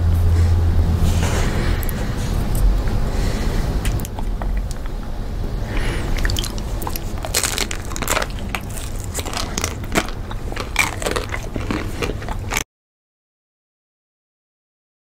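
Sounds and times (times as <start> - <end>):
low steady rumble: 0.0 - 12.6
close-up chewing: 1.6 - 12.6
ice cream bars crunching: 1.8 - 12.6.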